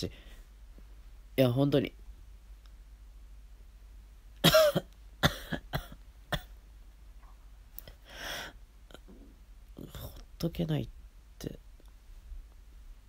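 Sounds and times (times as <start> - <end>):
breath: 0.1 - 0.5, 7.9 - 8.6
man coughing: 4.4 - 6.6.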